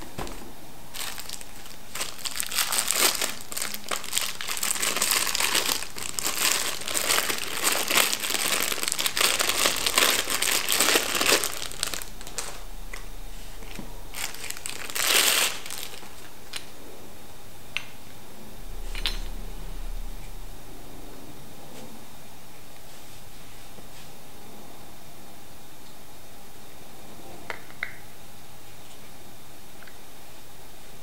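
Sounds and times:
plastic wrap crinkling: 0.0s - 16.3s.

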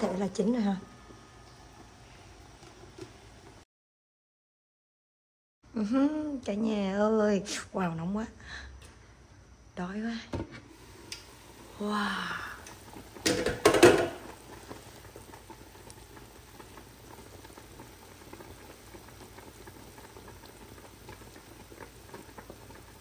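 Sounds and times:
broth bubbling in a pot: 0.0s - 3.6s, 10.6s - 23.0s.

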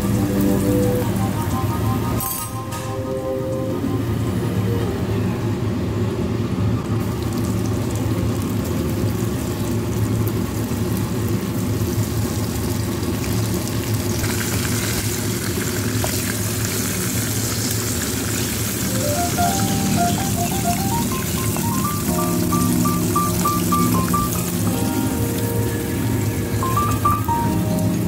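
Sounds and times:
prawns deep-frying in hot oil: 6.8s - 28.0s.

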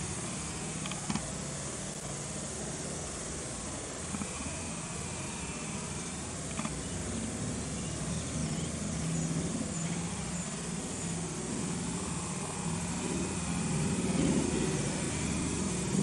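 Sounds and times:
high hiss: 0.0s - 16.0s
low hum: 4.0s - 16.0s.

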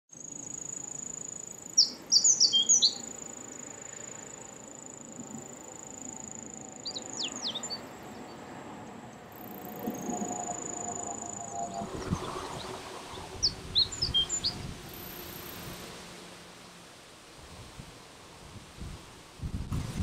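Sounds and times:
high-pitched insect trill: 0.1s - 8.0s, 9.3s - 12.7s, 13.4s - 15.8s
bird singing falling high notes: 1.8s - 3.1s, 13.4s - 15.2s.

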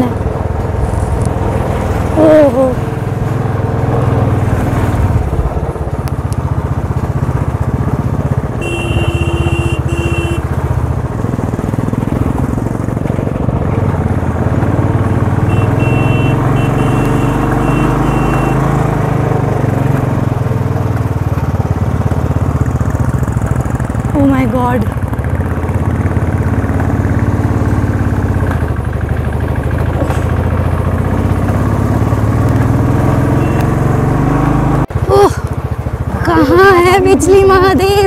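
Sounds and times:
motorcycle engine under load: 0.0s - 38.0s
tyre and road noise: 0.0s - 38.0s
high tone: 15.4s - 18.7s
short beeps: 15.5s - 18.6s, 33.4s - 33.7s.

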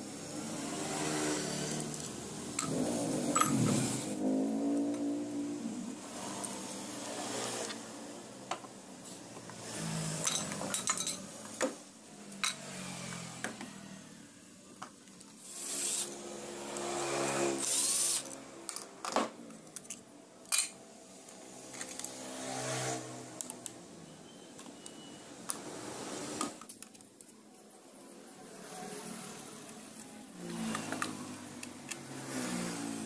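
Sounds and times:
metal parts clicking and scraping: 1.6s - 4.0s, 10.2s - 11.3s, 17.6s - 22.2s, 30.4s - 32.1s.

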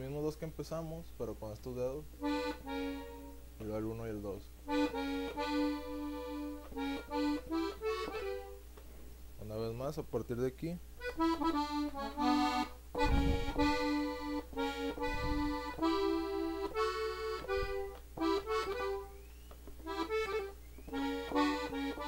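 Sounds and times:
button accordion melody: 2.2s - 3.8s, 4.6s - 8.7s, 11.0s - 22.0s.

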